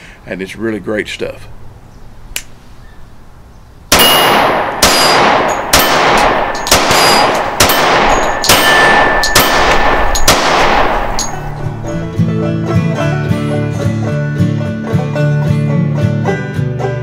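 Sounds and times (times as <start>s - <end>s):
pistol shots: 3.9s - 11.6s.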